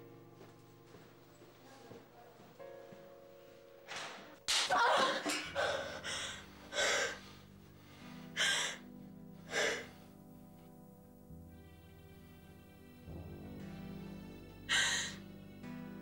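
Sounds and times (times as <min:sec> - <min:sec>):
soft background music: 0:00.0 - 0:16.0
woman gasping heavily: 0:04.8 - 0:07.4, 0:08.3 - 0:08.9, 0:09.5 - 0:10.0, 0:14.7 - 0:15.2.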